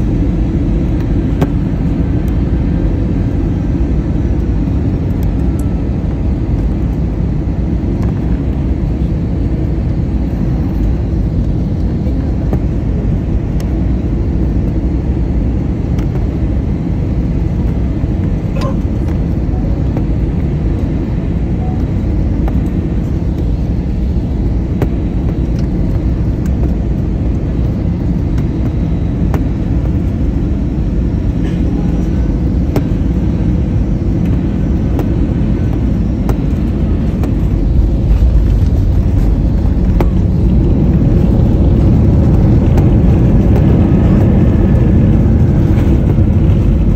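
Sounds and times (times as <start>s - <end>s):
jet engine rumble: 0.0s - 46.9s.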